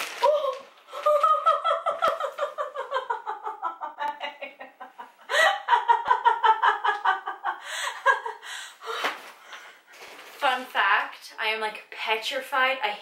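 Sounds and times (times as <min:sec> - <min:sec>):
woman laughing: 0:00.9 - 0:08.5.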